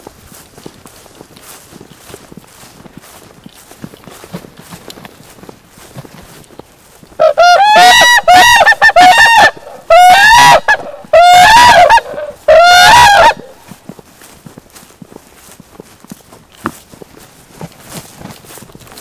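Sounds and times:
cranes trumpeting calls: 0:07.2 - 0:13.6.

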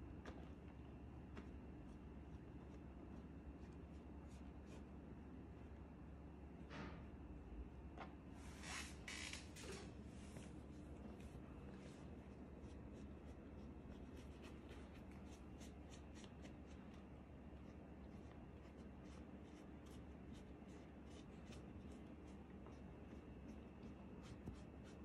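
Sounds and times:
low room hum: 0:00.0 - 0:25.0
paintbrush dabbing strokes: 0:01.3 - 0:05.0, 0:11.7 - 0:25.0.

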